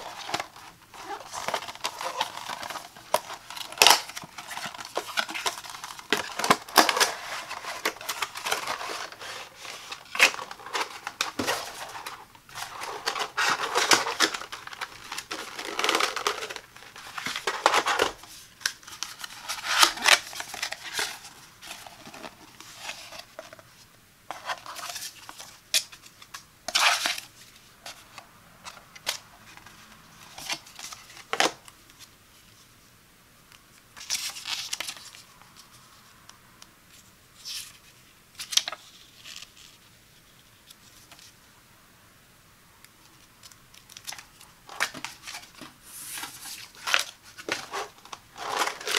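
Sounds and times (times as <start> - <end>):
cardboard packaging rustling and scraping: 0.0 - 26.1, 26.7 - 31.6, 43.8 - 48.9.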